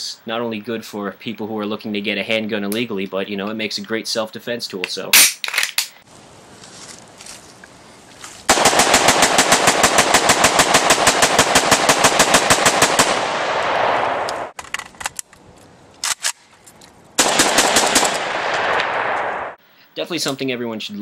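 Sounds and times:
rapid gunfire: 8.5s - 13.6s, 17.2s - 19.2s
separate gunshots: 8.5s - 14.6s, 17.2s - 19.6s.

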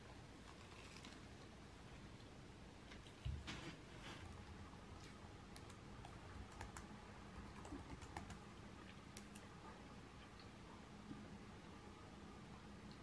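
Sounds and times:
laptop keyboard typing: 5.5s - 8.4s.

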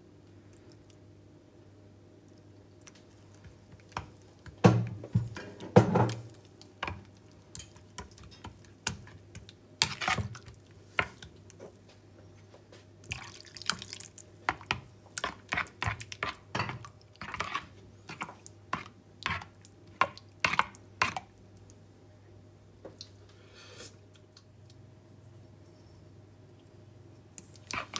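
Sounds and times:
liquid pouring and splashing: 13.1s - 14.2s
spoon stirring in plastic bowl: 14.5s - 21.2s, 27.5s - 27.9s.

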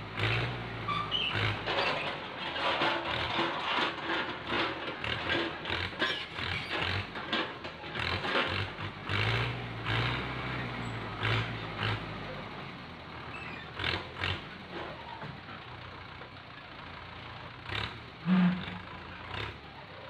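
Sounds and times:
tractor diesel engine running: 0.0s - 20.0s
hydraulic crane working: 0.1s - 15.8s.

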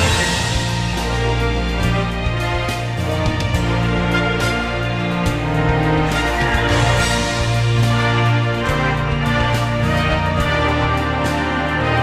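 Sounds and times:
background music with sustained chords: 0.0s - 12.0s.

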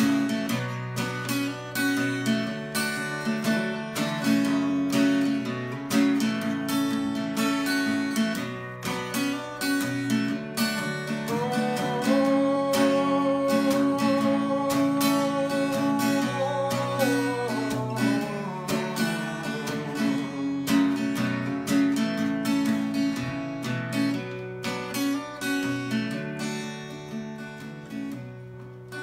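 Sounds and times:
acoustic guitar strumming: 0.0s - 29.0s.

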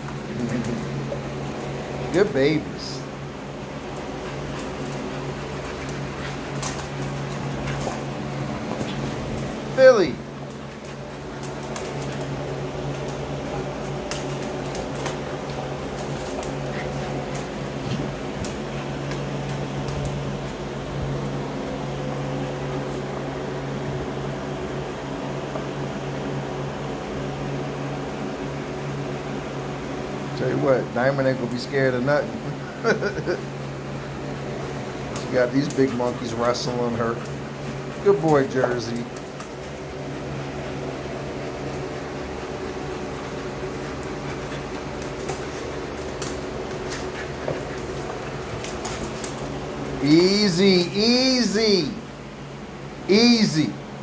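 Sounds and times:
mechanical hum: 0.0s - 54.0s
dog claws clicking on floor: 3.8s - 9.6s, 10.4s - 20.6s, 35.0s - 40.0s, 41.5s - 50.0s.

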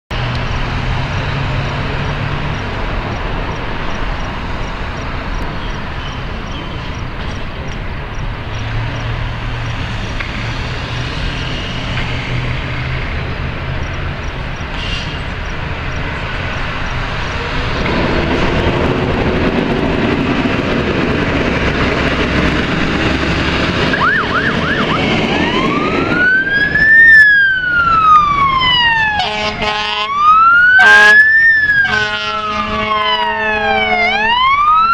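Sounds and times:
fire engine diesel revving: 0.1s - 34.9s
street traffic: 0.1s - 34.9s
air horn blast: 14.7s - 15.2s, 29.1s - 30.2s, 30.8s - 34.1s
siren chirping and wailing: 23.8s - 34.9s.

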